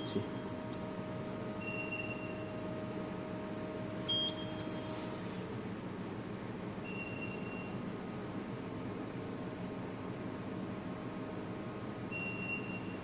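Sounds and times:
steady hum: 0:00.0 - 0:13.0
short electronic beeps: 0:04.1 - 0:04.9.

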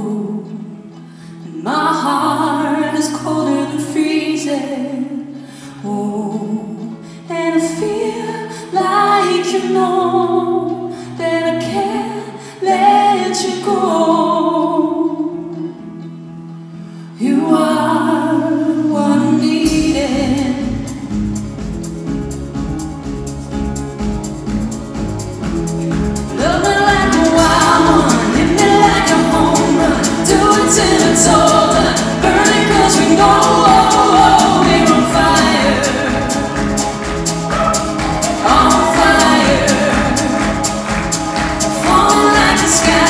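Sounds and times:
guitar: 0:00.0 - 0:43.0
keyboard: 0:16.6 - 0:43.0
double bass line: 0:18.9 - 0:43.0
drum kit ticking beat: 0:19.6 - 0:43.0
person singing: 0:26.3 - 0:43.0.

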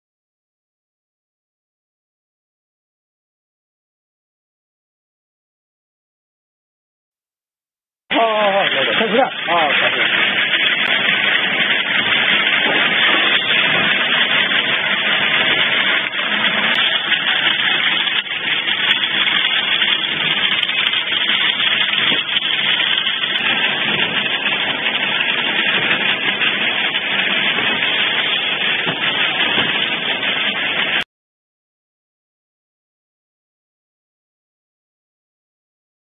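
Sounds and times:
printing machine running: 0:08.1 - 0:31.0.

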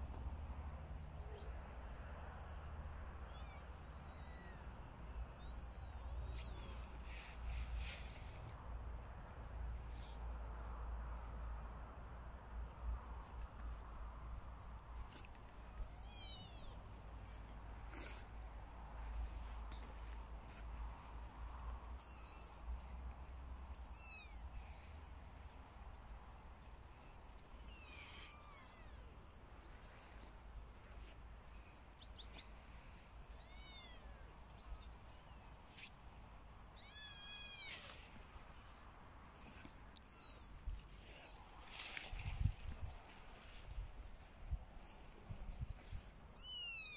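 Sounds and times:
kittens mewing: 0:15.9 - 0:16.8, 0:23.8 - 0:24.4, 0:27.6 - 0:29.1, 0:33.4 - 0:34.3, 0:40.0 - 0:40.6, 0:46.4 - 0:46.9.

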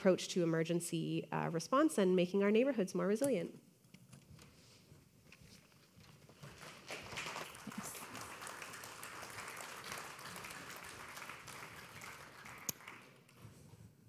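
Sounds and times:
audience applauding: 0:06.4 - 0:13.4.

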